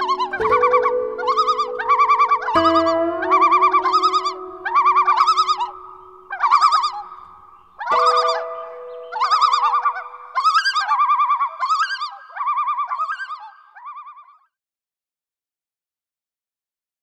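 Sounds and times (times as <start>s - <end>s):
held lower tones: 0.0s - 11.1s
bird-like trilled warbling: 0.0s - 14.2s.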